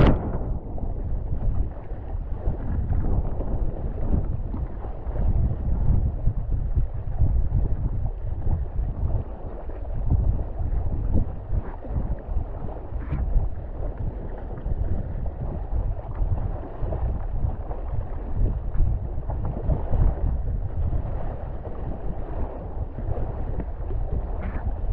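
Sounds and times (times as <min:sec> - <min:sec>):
water rushing and splashing: 0:00.0 - 0:05.5, 0:11.1 - 0:24.9
wind buffeting microphone: 0:00.0 - 0:24.9.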